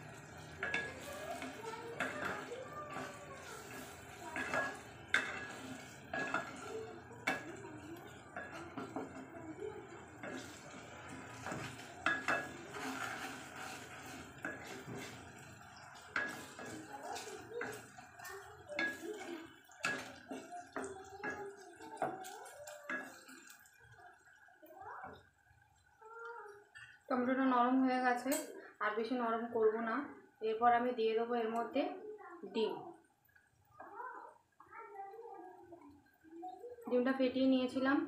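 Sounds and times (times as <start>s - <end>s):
spatula tapping metal pot: 0.0s - 23.9s
wooden spatula stirring in pot: 0.0s - 27.4s.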